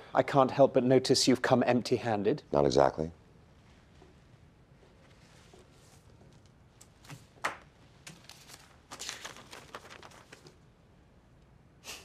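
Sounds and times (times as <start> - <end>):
paper rustling: 5.0 - 10.6.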